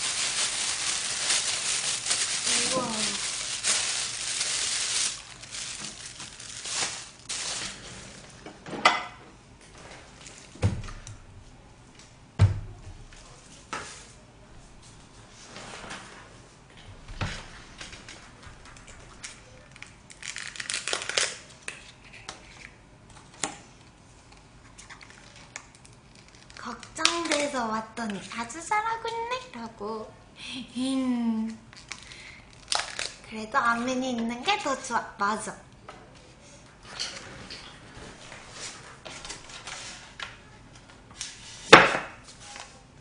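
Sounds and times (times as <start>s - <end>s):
plastic bag crinkling: 0.0s - 8.1s, 19.0s - 21.5s, 24.9s - 27.6s, 31.7s - 33.3s
dishes clattering on table: 8.6s - 9.2s.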